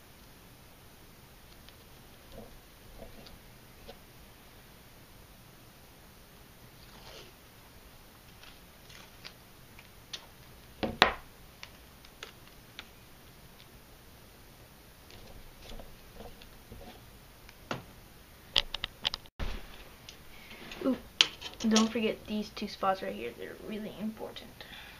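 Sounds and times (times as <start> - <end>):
masking tape crackling and tearing: 8.2 - 10.5.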